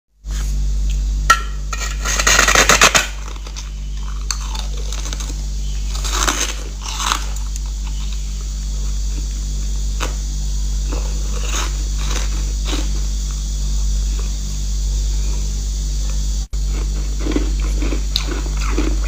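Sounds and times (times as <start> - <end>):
steady low hum: 0.2 - 19.0
crunching of chewed ice: 1.8 - 10.2, 10.8 - 13.4, 16.6 - 19.0.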